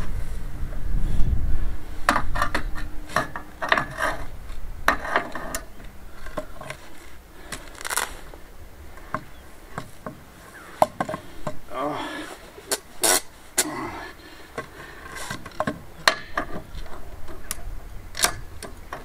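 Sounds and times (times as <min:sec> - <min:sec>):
wind rumble on microphone: 0:00.0 - 0:11.7, 0:15.6 - 0:19.0.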